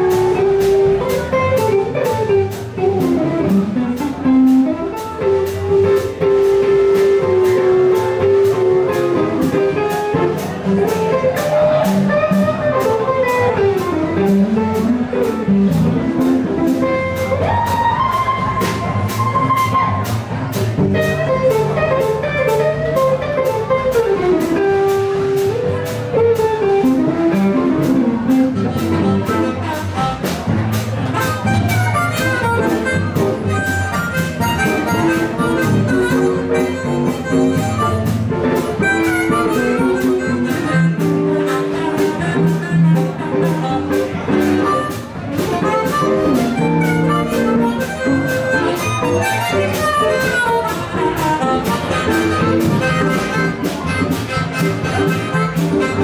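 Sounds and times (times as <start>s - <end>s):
drum kit beat: 0.0s - 56.0s
electric and acoustic guitars: 0.0s - 56.0s
amplified harmonica: 27.1s - 56.0s.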